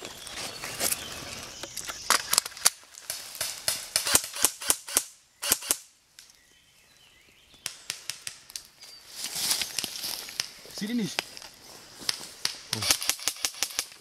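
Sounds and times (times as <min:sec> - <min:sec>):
airsoft rifle firing shots: 0:03.4 - 0:05.8, 0:12.4 - 0:13.9.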